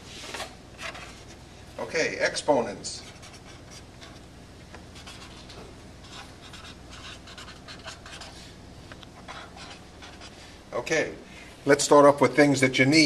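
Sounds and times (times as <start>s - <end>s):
marker scratching on paper: 3.0s - 4.2s, 5.0s - 8.5s, 9.2s - 10.4s.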